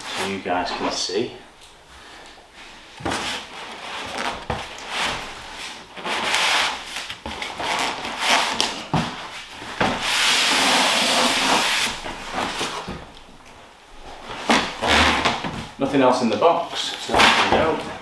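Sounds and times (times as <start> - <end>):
polystyrene and cardboard scraping: 3.1 - 12.9.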